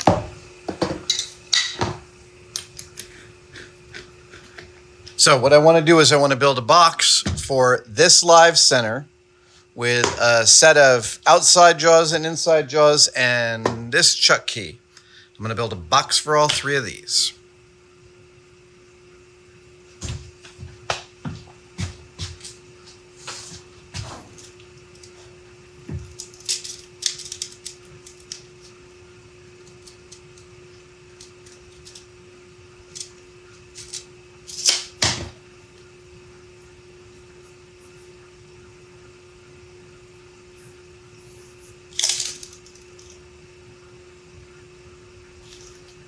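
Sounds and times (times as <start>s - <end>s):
steady hum: 0.0s - 46.0s.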